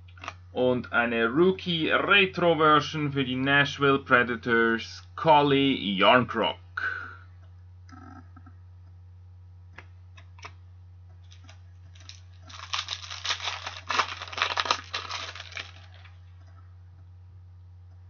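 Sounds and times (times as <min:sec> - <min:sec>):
wrapping crinkling: 0:11.2 - 0:16.4.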